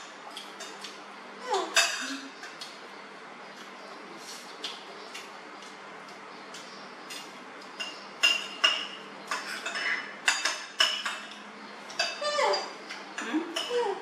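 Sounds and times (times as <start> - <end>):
cutlery clinking on ceramic bowls: 1.7 - 2.7, 7.2 - 14.0.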